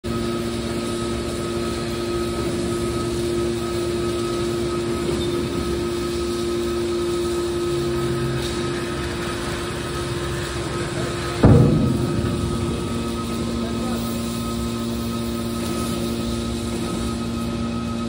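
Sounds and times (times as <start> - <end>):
hydraulic baler drone and whine: 0.1 - 18.0.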